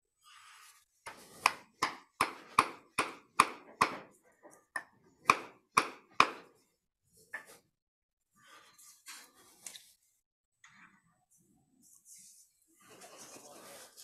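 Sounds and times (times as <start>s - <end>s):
wooden mallet knocking on log: 4.8s - 6.5s.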